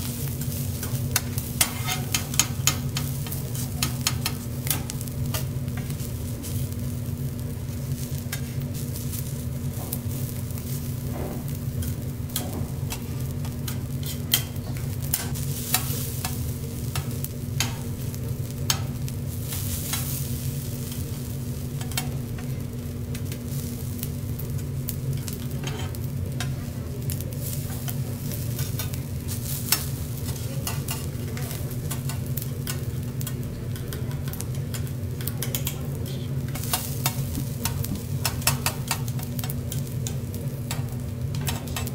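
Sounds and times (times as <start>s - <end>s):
rice sizzling on a griddle: 0.0s - 41.9s
metal spatula scraping and tapping: 0.8s - 5.9s, 11.8s - 17.8s, 21.8s - 22.5s, 25.2s - 26.6s, 29.7s - 31.1s, 31.9s - 35.8s, 36.5s - 41.9s.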